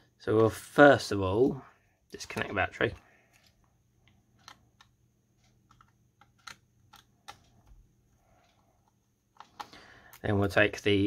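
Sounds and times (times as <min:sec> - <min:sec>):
small plastic and metal clicks: 0:02.2 - 0:07.8, 0:08.4 - 0:10.3.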